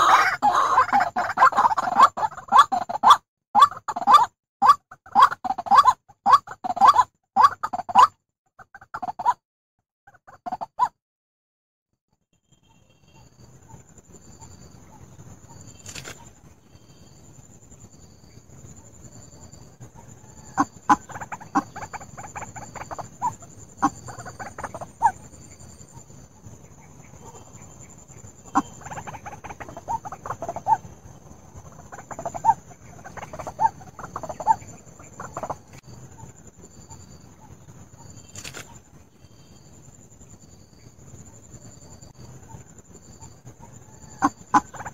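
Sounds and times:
waterhen calls: 0.0 - 9.4, 20.0 - 25.2, 28.4 - 30.9, 31.6 - 36.3, 43.6 - 44.9.

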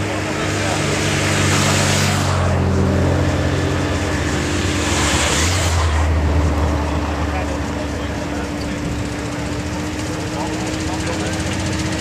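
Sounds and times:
motorcycles riding past: 0.0 - 12.0.

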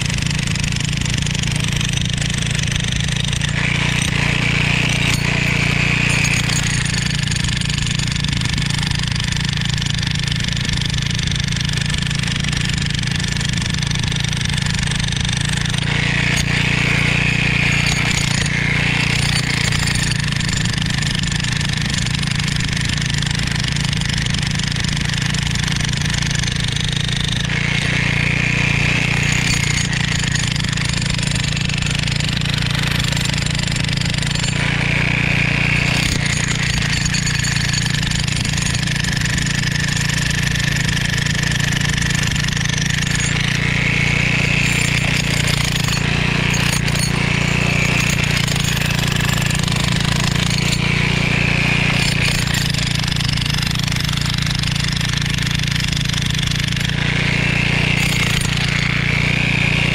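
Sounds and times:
jackhammer chiselling concrete: 0.0 - 59.9.

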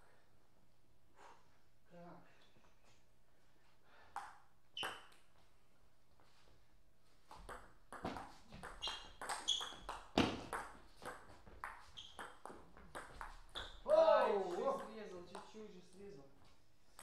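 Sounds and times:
table tennis ball hits and bounces: 4.2 - 5.3, 7.3 - 15.6.

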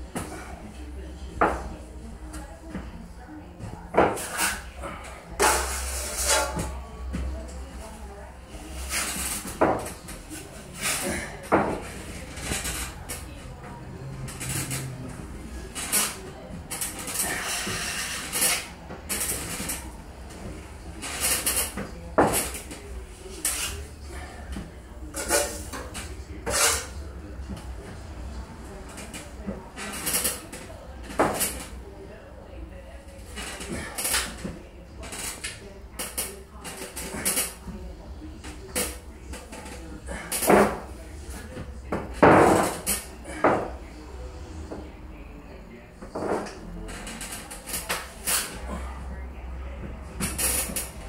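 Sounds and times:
drywall trowel scraping ceiling: 3.9 - 6.9, 8.5 - 13.3, 14.0 - 20.0, 25.1 - 27.1
drywall knife scraping compound: 5.4 - 6.8, 26.4 - 27.0.

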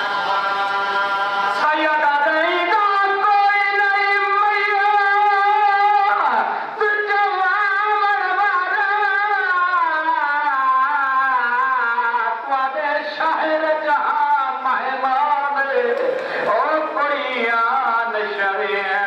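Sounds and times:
man singing a lament: 0.0 - 19.0
sharp breath: 16.0 - 16.5.

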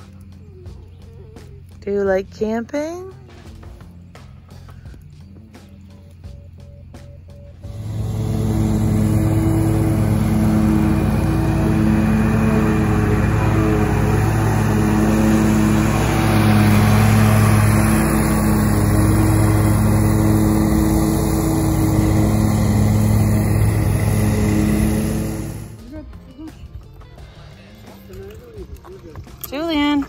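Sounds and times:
lawn mower engine droning: 7.5 - 25.9.

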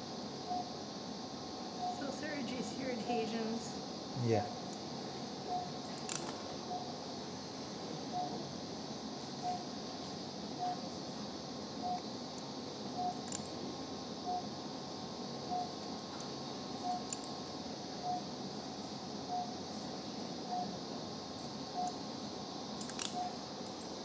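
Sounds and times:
equipment hum: 0.0 - 24.0
patient monitor beeping: 8.1 - 8.4, 9.4 - 9.7, 10.6 - 10.8, 15.5 - 15.7, 18.0 - 18.3.

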